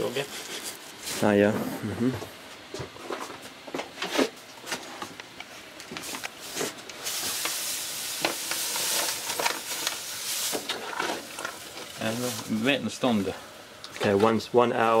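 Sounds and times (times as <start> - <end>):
paper bag rustling: 6.0 - 13.4.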